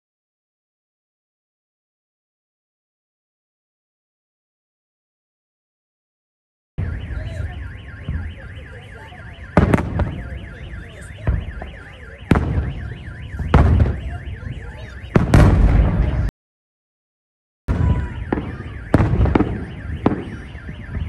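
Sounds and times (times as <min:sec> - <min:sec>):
fireworks exploding with loud booms: 0:06.8 - 0:16.3, 0:17.7 - 0:21.0
warbling electronic alarm: 0:06.8 - 0:16.3, 0:17.7 - 0:21.0.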